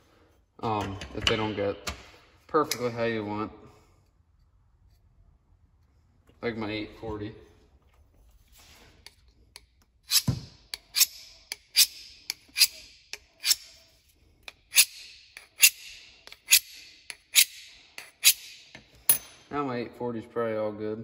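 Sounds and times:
knife on sharpening rod: 10.1s - 13.9s, 14.5s - 18.7s.

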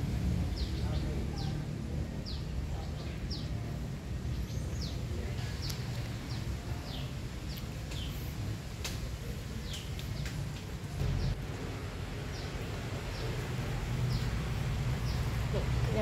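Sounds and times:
steady low rumble: 0.0s - 4.8s, 10.4s - 16.0s.

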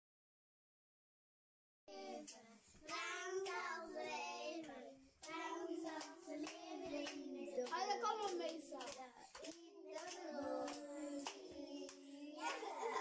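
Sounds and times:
children singing together: 1.9s - 13.0s
hand claps: 2.2s - 3.6s, 4.6s - 13.0s.

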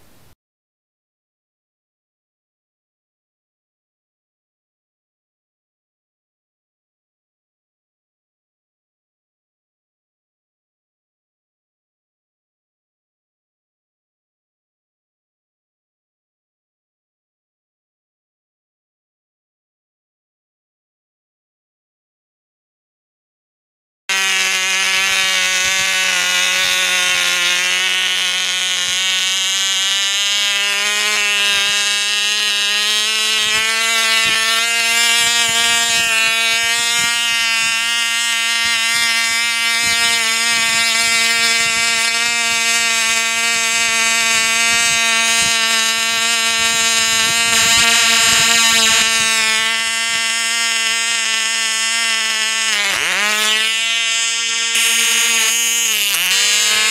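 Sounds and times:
model plane engine buzzing: 24.1s - 56.9s.

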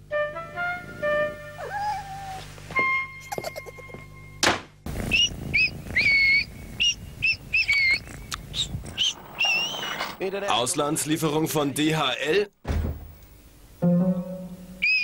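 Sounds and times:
small bird chirping: 5.0s - 10.0s.

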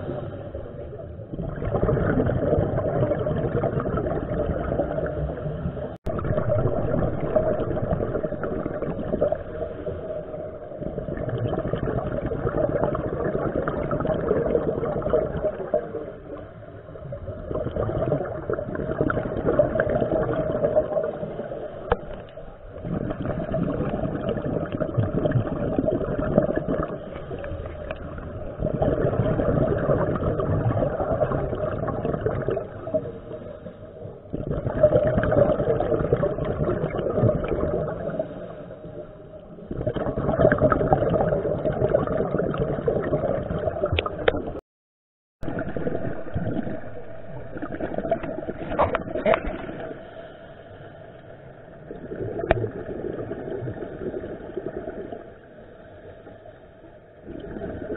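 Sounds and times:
underwater regulator breathing and bubbles: 0.0s - 44.6s, 45.4s - 57.9s.

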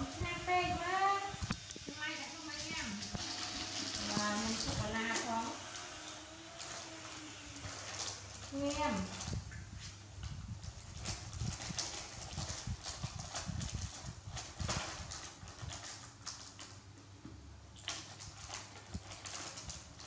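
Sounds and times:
plastic snack packet crinkling: 10.9s - 16.8s, 17.8s - 20.0s.

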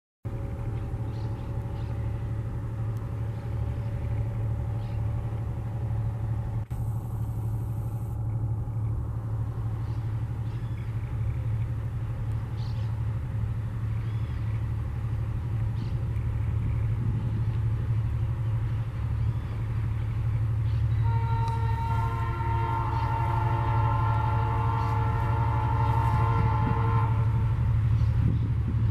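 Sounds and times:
diesel locomotive engine throbbing: 0.3s - 28.9s
train horn: 20.8s - 28.3s.

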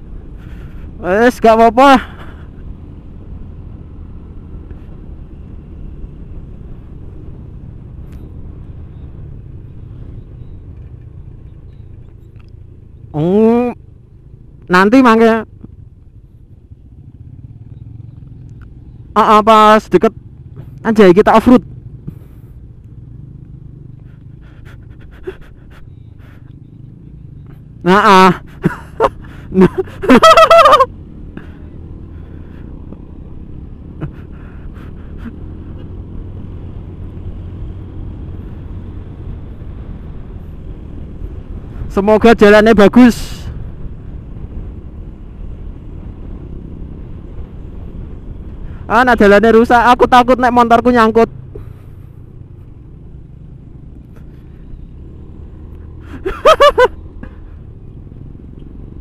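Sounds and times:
scooter engine and wind rumble: 0.0s - 59.0s
person crying out: 29.6s - 30.9s.

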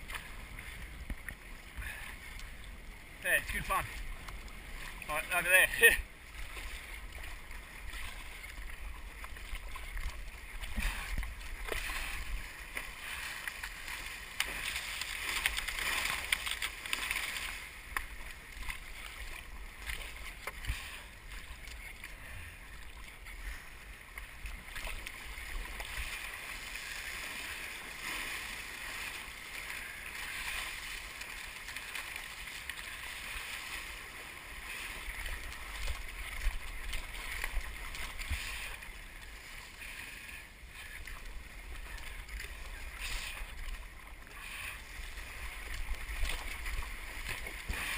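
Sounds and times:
water splashing along a hull: 0.0s - 47.9s.

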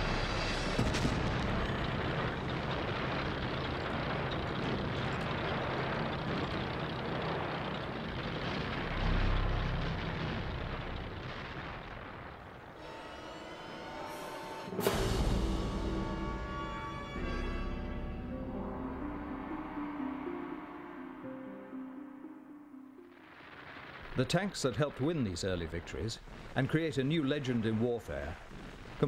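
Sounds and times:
tank engine rumbling: 0.0s - 13.4s.

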